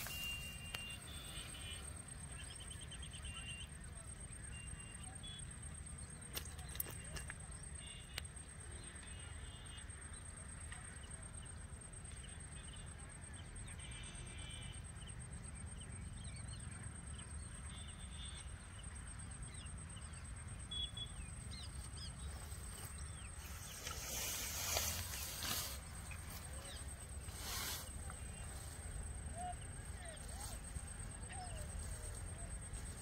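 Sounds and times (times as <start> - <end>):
grass rustling and handling: 0.0 - 2.5, 21.6 - 33.0
faint bird chirps: 0.0 - 10.1, 12.1 - 33.0.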